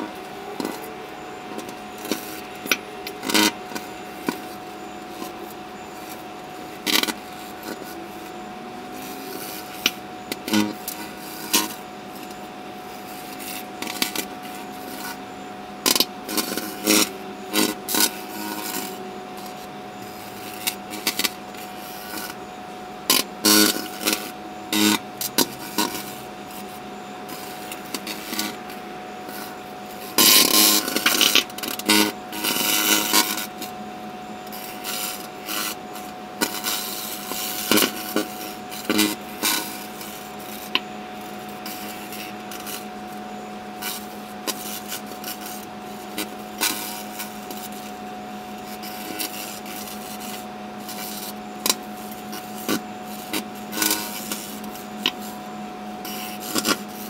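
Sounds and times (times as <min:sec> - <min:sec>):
microwave oven humming: 0:00.0 - 0:57.0
sparks crackling and popping: 0:01.5 - 0:08.3, 0:09.0 - 0:15.2, 0:15.8 - 0:22.4, 0:23.1 - 0:33.8, 0:34.4 - 0:57.0.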